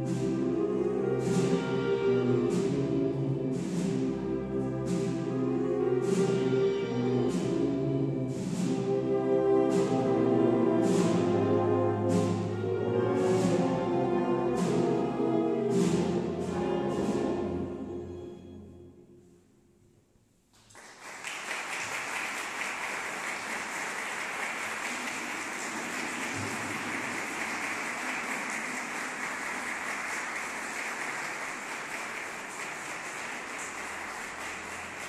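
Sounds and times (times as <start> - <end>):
audience applauding: 20.6 - 35.0.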